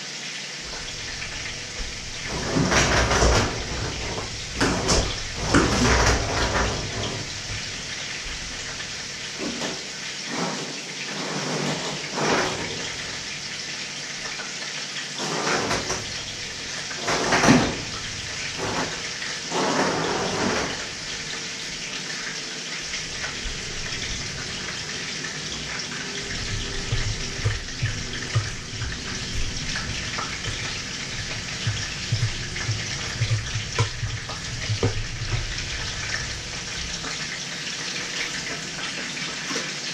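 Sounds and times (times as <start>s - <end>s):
steady kitchen hiss: 0.0s - 39.9s.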